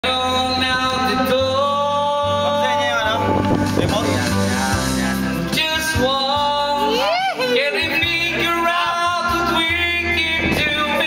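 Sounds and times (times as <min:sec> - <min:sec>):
backing music: 0:00.0 - 0:11.0
man singing into a microphone: 0:00.0 - 0:11.0.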